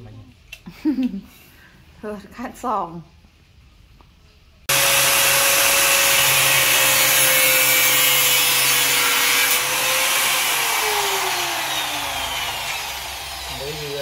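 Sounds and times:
angle grinder cutting plastic: 4.7 - 14.0
grinder disc spinning down: 8.6 - 14.0.

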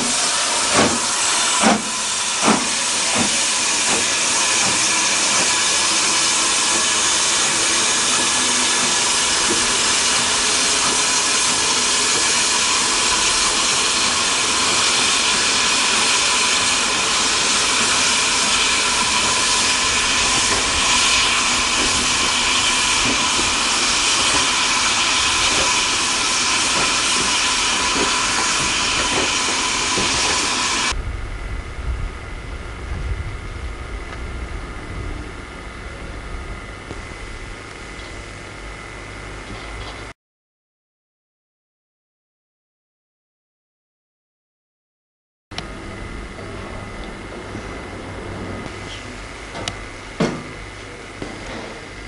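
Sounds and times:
steam locomotive hissing: 0.0 - 31.0.

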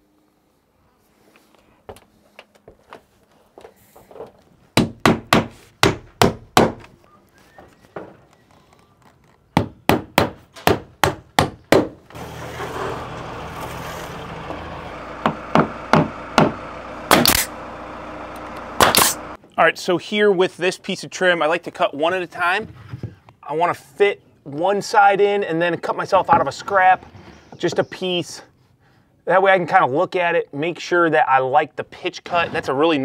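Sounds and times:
hammer nailing wood: 4.8 - 6.9, 9.6 - 12.1, 15.2 - 17.5.

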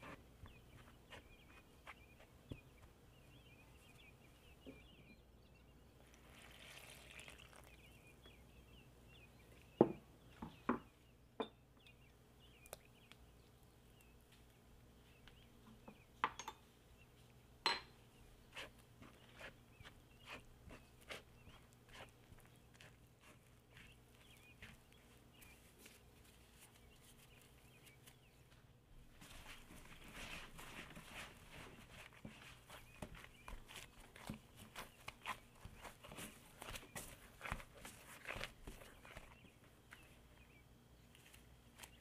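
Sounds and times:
water poured into flour: 6.2 - 7.8.

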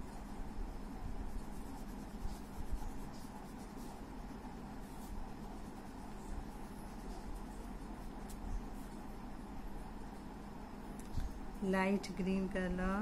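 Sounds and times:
faint steady hum: 0.0 - 13.0
pencil scratching on paper: 1.2 - 8.9.

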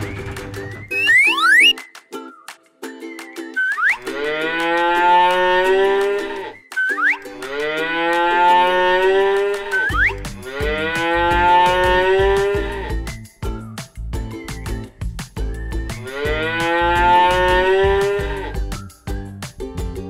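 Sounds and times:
light background music: 0.0 - 20.0
cow mooing: 4.0 - 6.6, 7.4 - 12.9, 16.0 - 18.3
low beat: 9.8 - 20.0.

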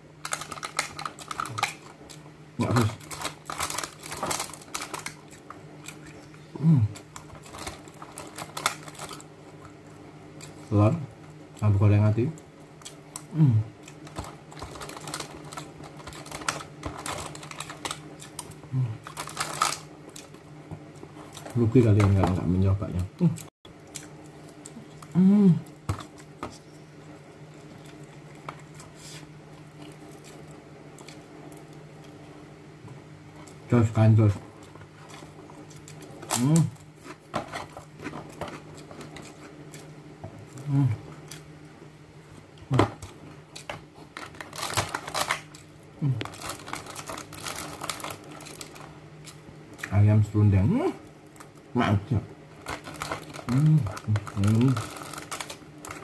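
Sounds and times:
person humming mm: 6.4 - 7.0, 13.3 - 13.8, 18.7 - 19.0, 25.0 - 25.7, 36.3 - 36.8, 40.6 - 41.0, 46.0 - 46.3, 53.5 - 54.8.

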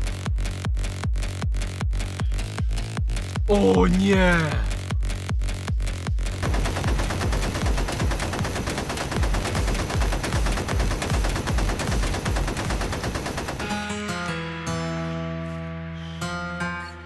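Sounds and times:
machine-gun fire: 6.3 - 14.0.

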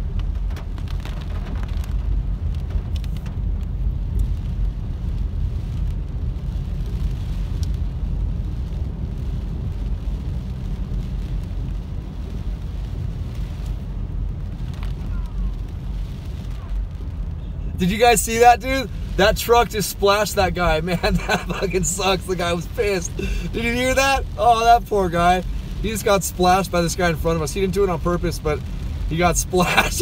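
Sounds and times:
car engine and tyres on wet road: 0.0 - 30.0
rain on car: 0.0 - 30.0
faint ticks: 7.6 - 7.8.

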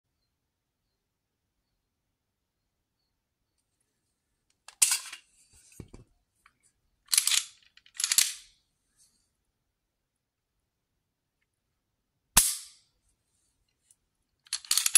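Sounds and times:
pistol slide metallic clacks: 7.1 - 8.5.

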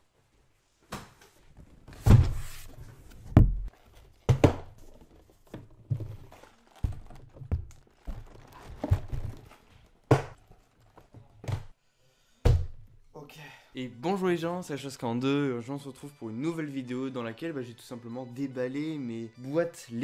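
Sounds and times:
cardboard rustling and sliding: 1.8 - 4.2, 4.8 - 9.9
cardboard boxes thunking down: 2.0 - 10.4.

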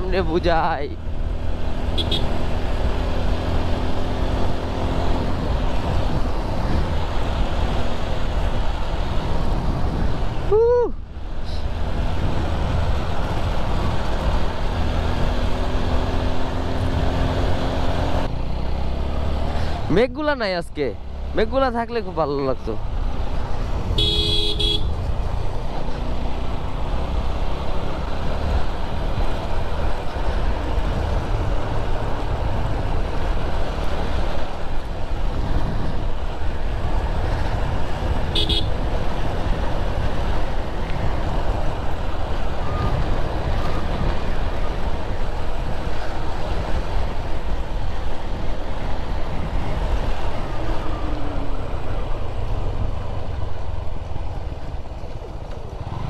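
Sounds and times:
wind rush on microphone: 1.2 - 18.3, 24.8 - 56.0
short horn toot: 24.0 - 24.9.

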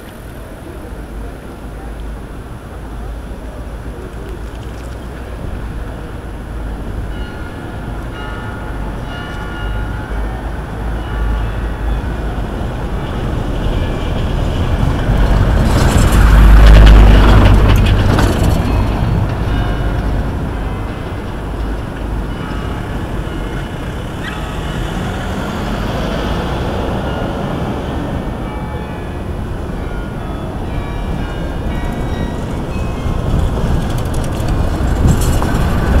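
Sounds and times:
city traffic noise: 0.0 - 36.0
bus driving past on cobbles: 31.1 - 36.0.

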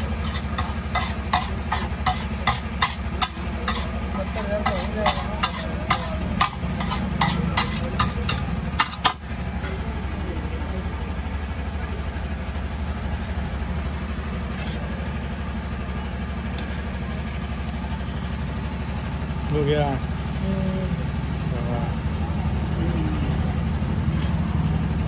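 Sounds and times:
metal spatula scraping iron griddle: 0.0 - 9.2
low engine hum: 0.0 - 25.0.

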